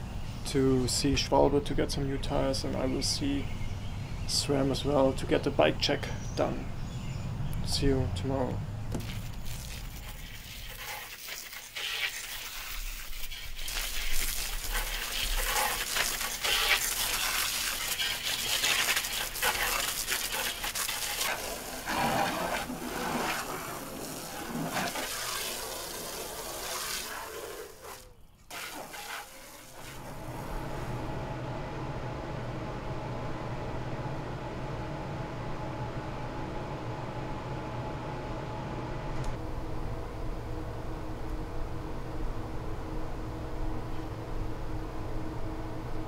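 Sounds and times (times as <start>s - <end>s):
garden hose spraying water: 8.9s - 30.8s
low steady hum: 29.4s - 46.0s.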